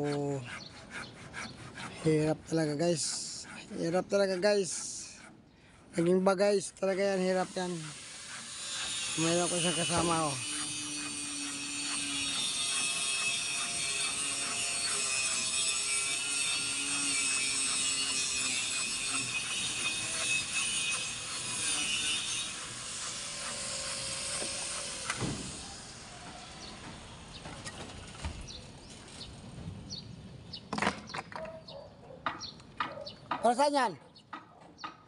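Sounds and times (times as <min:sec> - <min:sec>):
power cutting tool whining: 0:07.2 - 0:26.8
clicks and knocks of metal and wood: 0:30.7 - 0:31.6.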